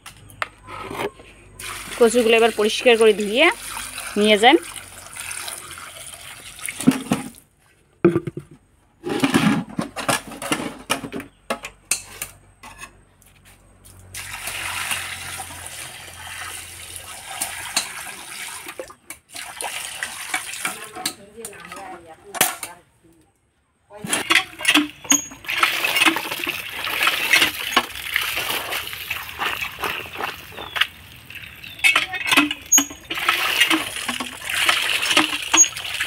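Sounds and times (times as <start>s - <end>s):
water splashing on concrete: 1.6s - 7.4s, 14.1s - 22.0s, 24.2s - 36.0s.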